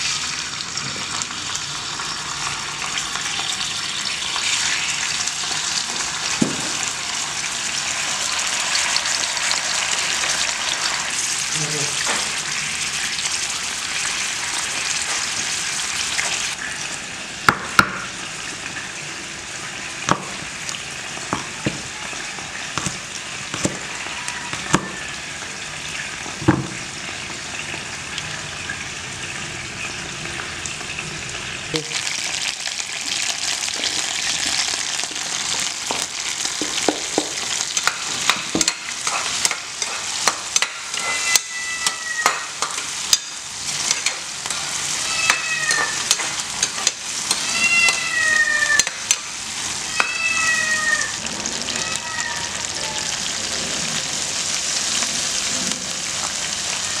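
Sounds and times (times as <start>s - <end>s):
snails sizzling in hot oil: 0.0s - 57.0s
metal ladle stirring in pan: 37.7s - 48.0s.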